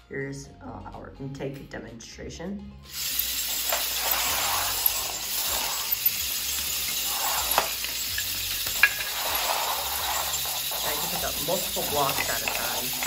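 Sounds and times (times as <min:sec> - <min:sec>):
robot rollers whirring rattle: 0:02.9 - 0:13.0.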